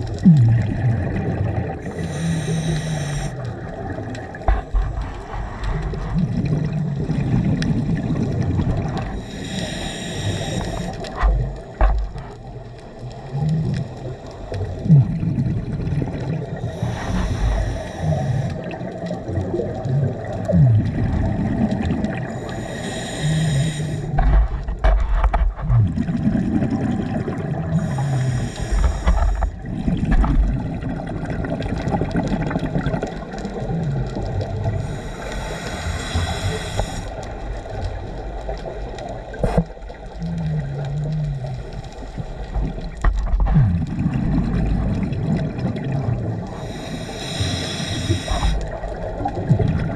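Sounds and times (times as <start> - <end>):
bubbling rumbles: 0.0 - 2.0, 3.3 - 9.2, 10.8 - 17.6, 18.5 - 22.4, 24.0 - 35.0, 37.1 - 47.1, 48.2 - 49.9
regulator breathing hiss: 1.8 - 3.4, 9.1 - 11.2, 16.6 - 18.8, 22.3 - 24.2, 27.8 - 29.6, 34.7 - 37.3, 46.5 - 48.7.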